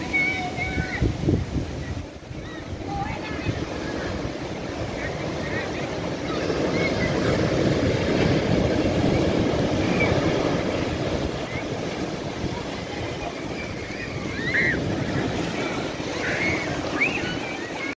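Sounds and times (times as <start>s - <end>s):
sea waves breaking: 0.0s - 17.9s
surf rushing over sand: 0.0s - 17.9s
bird calls: 13.2s - 17.9s.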